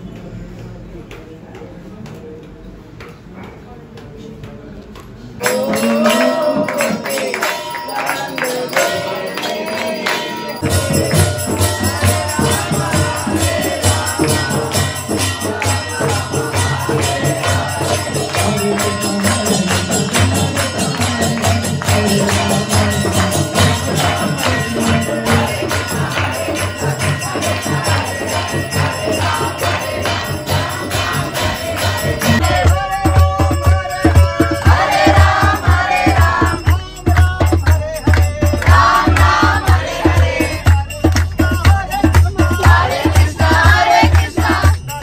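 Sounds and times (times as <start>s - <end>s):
devotional singing: 5.4s - 45.0s
jingling metal percussion: 5.4s - 45.0s
steady drum beat: 10.3s - 45.0s.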